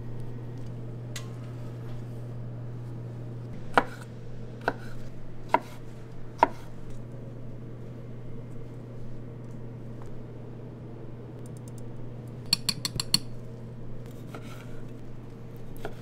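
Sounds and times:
low hum: 0.0 - 15.8
knife chopping on cutting board: 3.7 - 4.0, 4.6 - 5.8, 6.4 - 6.7.

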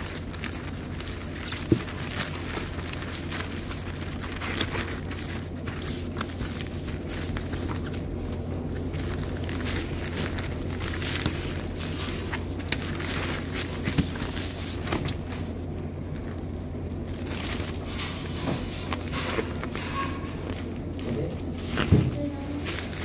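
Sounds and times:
plastic sheet crinkling: 0.0 - 23.0.

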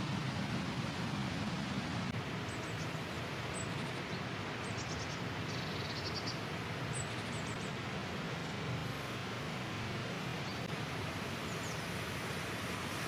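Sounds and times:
steady rushing noise: 0.0 - 5.5, 6.4 - 13.0
songbirds chirping: 2.3 - 8.7, 10.2 - 10.7.

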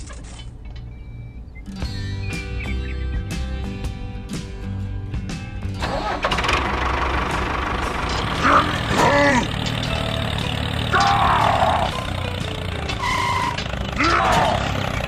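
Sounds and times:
tractor engine idling: 5.5 - 15.0.

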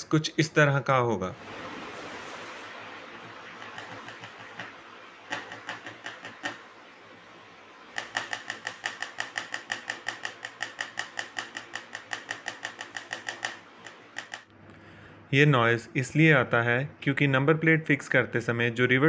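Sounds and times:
metal number plate rattling: 8.0 - 14.4.

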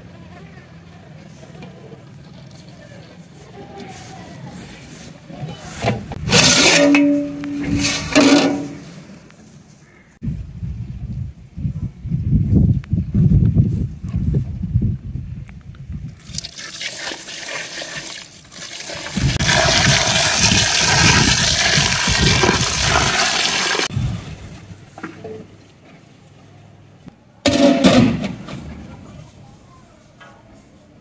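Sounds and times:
water pouring: 16.2 - 23.9.

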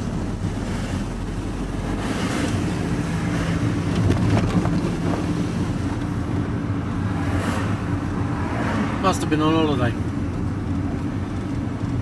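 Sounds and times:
vehicle engine drone and road noise: 0.0 - 12.0
car passing close by: 6.8 - 9.8.

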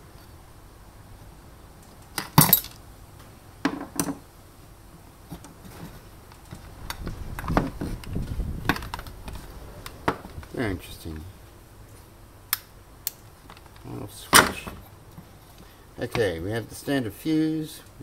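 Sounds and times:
rustling: 4.9 - 12.2.

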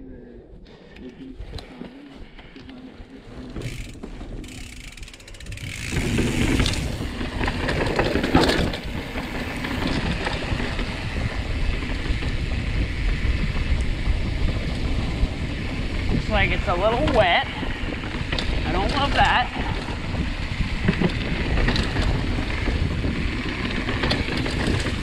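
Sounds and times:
wind buffeting microphone: 0.0 - 25.0
tyres rumbling over rock: 3.4 - 10.7
bicycle freehub ticking: 3.4 - 16.6.

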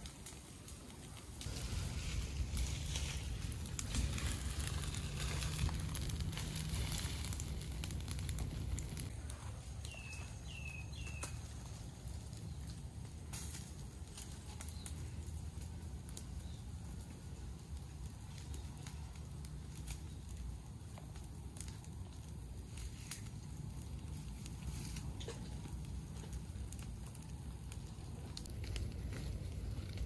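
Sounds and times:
wind rumbling on microphone: 0.0 - 13.3, 13.9 - 30.0
light crackling: 0.0 - 30.0
bird chirping: 9.8 - 11.4.

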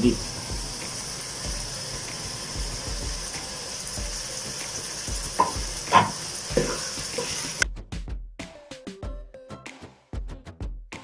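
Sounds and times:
vegetables sizzling in pot: 0.0 - 7.6
metal spoon knocking pot: 5.3 - 7.4.

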